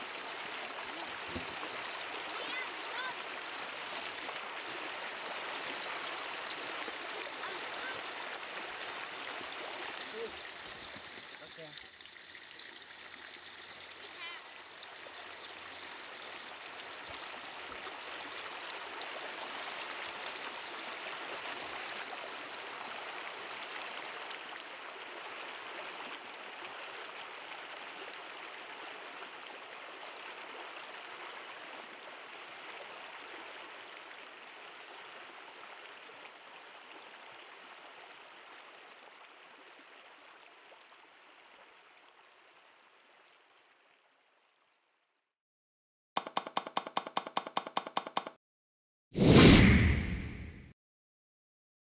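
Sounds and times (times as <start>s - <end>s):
river water rushing: 0.0s - 11.0s.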